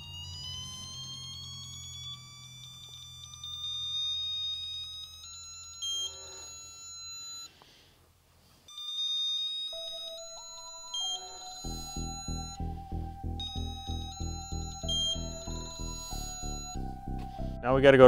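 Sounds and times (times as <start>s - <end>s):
torque wrench rising beep: 0.0s - 7.5s, 9.8s - 17.6s
low hum: 10.4s - 18.0s.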